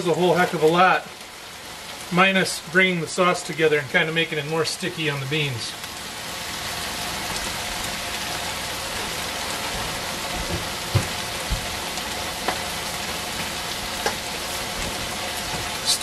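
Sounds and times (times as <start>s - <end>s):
beans sizzling in a wok: 0.0s - 16.0s.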